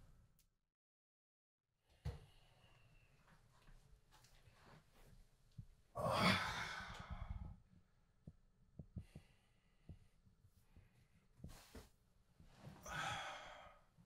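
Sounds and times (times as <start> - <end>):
man sighing heavily: 6.0 - 7.5, 12.8 - 13.8.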